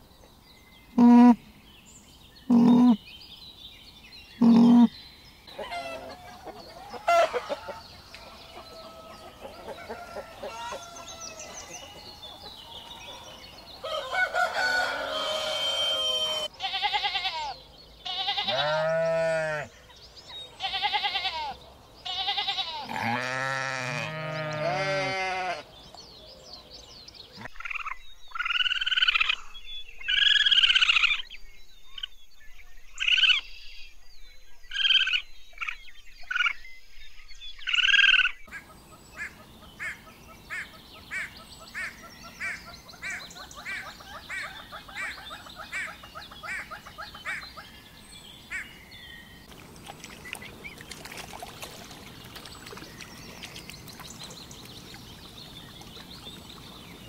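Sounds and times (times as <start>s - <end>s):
animal calls: 2.5s - 3.0s, 4.4s - 4.9s.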